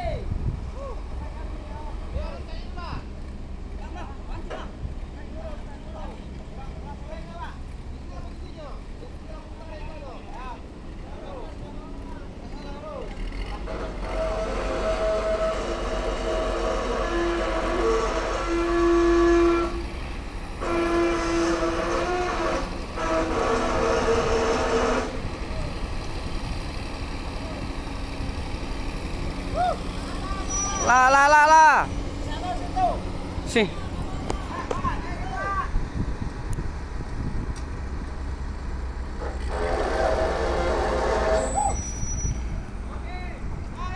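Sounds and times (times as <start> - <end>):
heavy diesel machinery drone: 0.3 - 43.8
loud mechanical rush: 13.0 - 43.9
low engine drone: 13.6 - 34.8
thin high squeals: 13.7 - 19.9, 20.6 - 31.9, 39.2 - 42.6.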